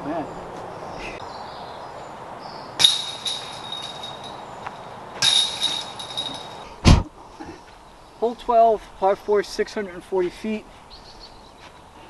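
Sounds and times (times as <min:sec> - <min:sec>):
discs clashing into chains: 0:02.8 - 0:04.5, 0:05.2 - 0:06.6.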